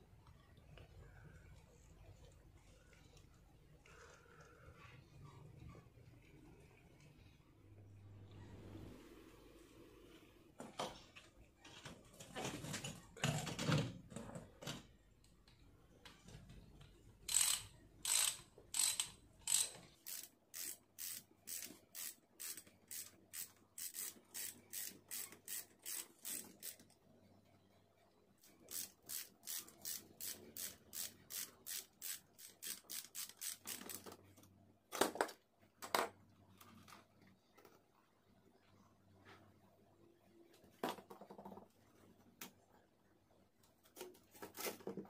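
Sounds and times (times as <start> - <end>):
ratchet wrench clicking: 17.3 - 26.8, 28.7 - 34.0.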